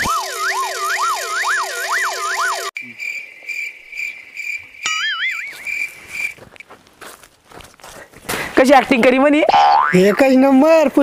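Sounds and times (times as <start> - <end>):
cricket chirping sound effect: 0.1 - 6.4.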